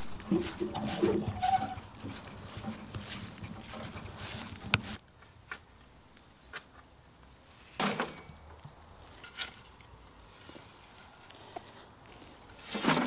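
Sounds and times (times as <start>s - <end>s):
garden fork digging wood chip: 0.0s - 5.0s, 12.4s - 13.0s
wheelbarrow rumbling over grass: 0.0s - 5.0s, 12.1s - 13.0s.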